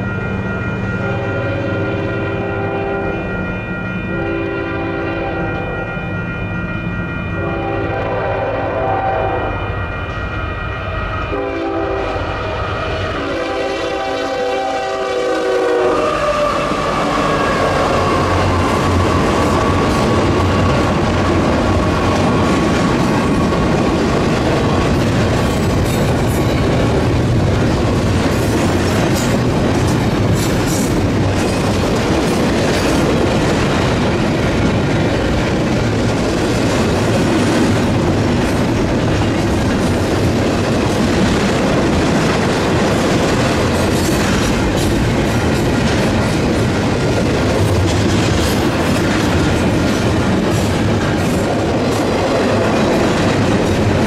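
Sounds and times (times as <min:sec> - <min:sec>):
train wheels rumbling on rails: 0:00.0 - 0:54.0
train horn: 0:00.9 - 0:03.4, 0:04.0 - 0:05.9, 0:07.3 - 0:09.8, 0:10.8 - 0:20.8.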